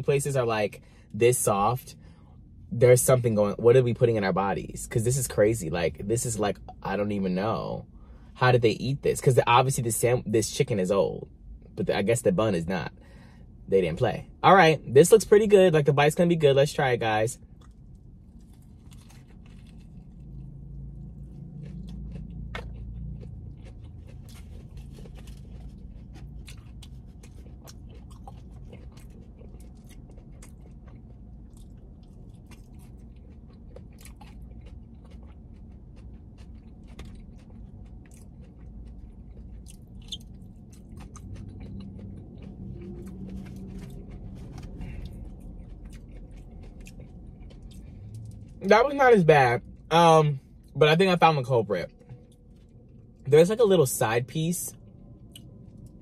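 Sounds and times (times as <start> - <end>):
person chewing crunchy food: 17.4 - 48.7, 51.4 - 53.2, 54.7 - 56.0.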